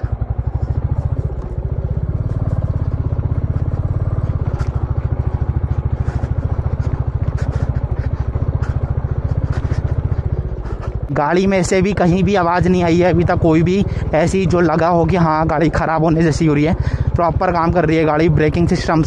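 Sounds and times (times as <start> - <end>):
motorcycle engine thumping: 0.0 - 14.2
gravel clattering under tyres: 0.0 - 19.0.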